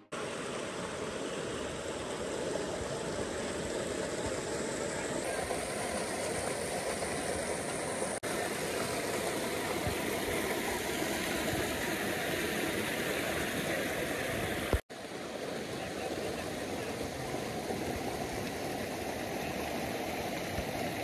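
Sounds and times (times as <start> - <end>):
stream rushing over stones: 0.0 - 21.0.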